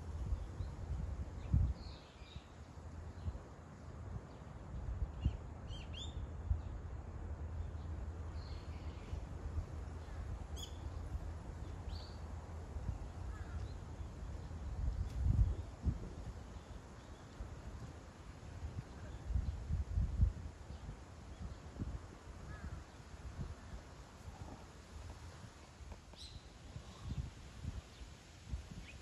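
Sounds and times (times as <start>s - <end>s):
bird chirps: 10.6s - 10.9s.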